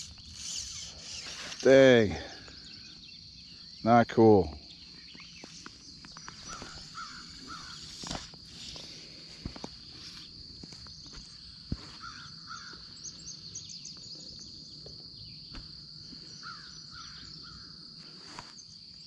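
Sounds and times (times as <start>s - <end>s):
short bird calls: 0.0s - 3.6s, 6.3s - 8.9s
high insect drone: 0.0s - 19.0s.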